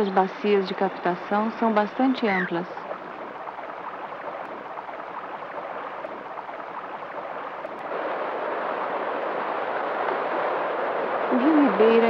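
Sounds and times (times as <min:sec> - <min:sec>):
river whitewater rushing over boulders: 0:02.7 - 0:12.0.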